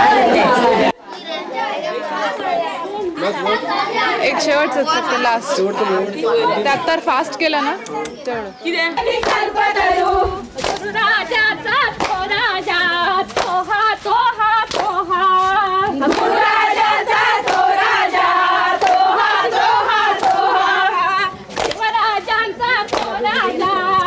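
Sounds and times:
women singing together: 4.2 - 7.6, 8.5 - 24.0
hand claps: 9.2 - 11.1, 12.0 - 15.4, 16.0 - 17.8, 18.8 - 19.1, 20.1 - 20.5, 21.5 - 24.0.

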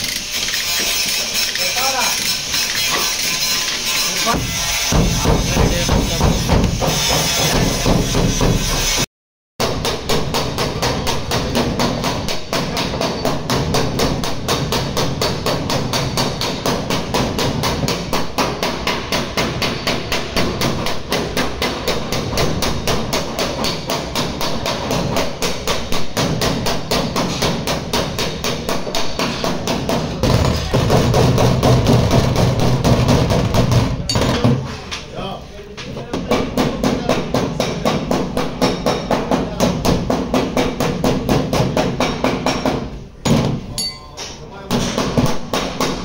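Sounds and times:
hammer tapping sheet metal: 0.0 - 35.0, 35.8 - 46.0.

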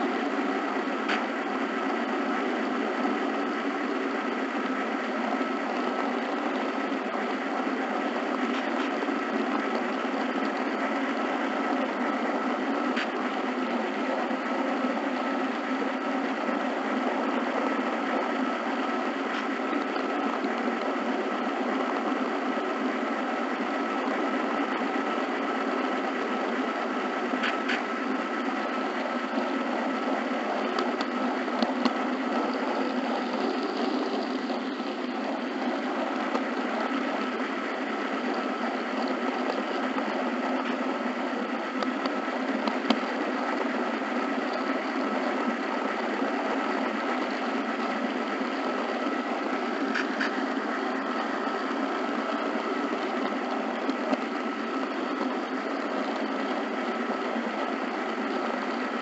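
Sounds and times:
model train motor whir: 0.0 - 59.0
faint clicks: 30.6 - 41.0.

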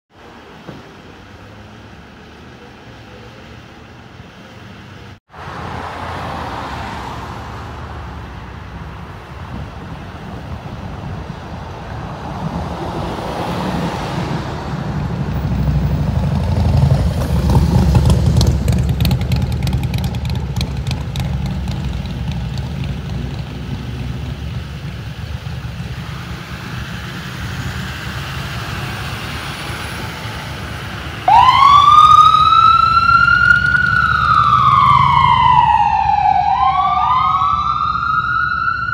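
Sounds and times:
ambulance engine rumble: 0.1 - 38.9
siren winding up: 31.3 - 38.9.

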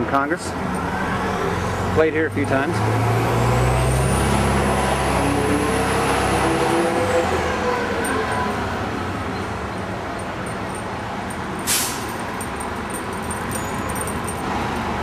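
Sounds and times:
vehicle engine rumble: 0.0 - 15.0
short sharp hiss: 11.7 - 12.1.

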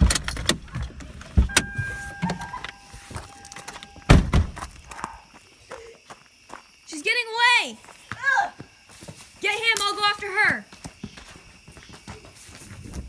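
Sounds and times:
car door clunking open: 0.0 - 2.8, 3.4 - 4.6
car warning tone: 1.4 - 4.3
car door slamming shut: 4.0 - 4.6.

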